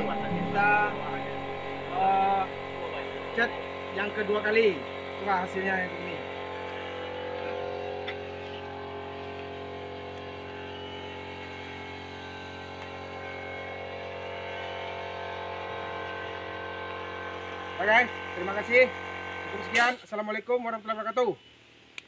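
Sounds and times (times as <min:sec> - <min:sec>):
engine droning steadily: 0:00.0 - 0:12.9.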